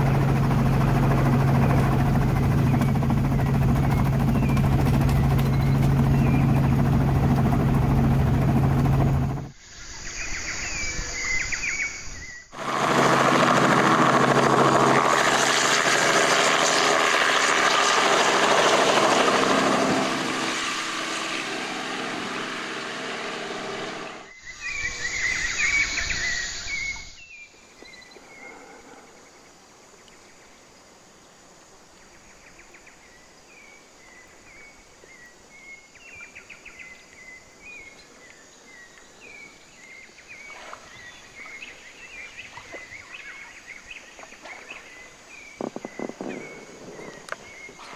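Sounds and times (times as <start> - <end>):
helicopter rotor and engine: 0.0 - 9.6, 12.5 - 25.2, 45.3 - 47.9.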